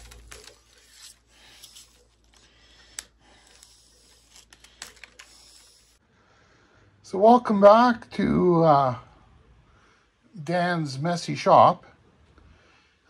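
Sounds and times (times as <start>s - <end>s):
wire rustling: 0.0s - 6.0s.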